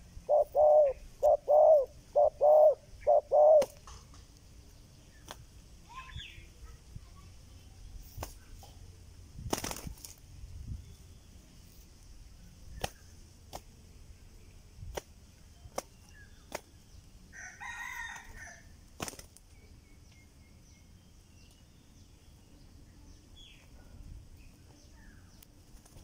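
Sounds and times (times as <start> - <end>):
dove wing slaps: 5.2 - 5.5, 8.1 - 8.4, 9.4 - 10.2, 12.8 - 13.7, 14.9 - 16.7, 19.0 - 19.4, 25.6 - 26.0.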